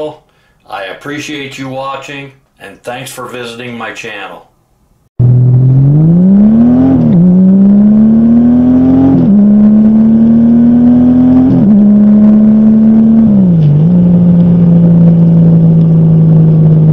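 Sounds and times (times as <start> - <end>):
motorcycle engine accelerating: 5.2 - 16.9.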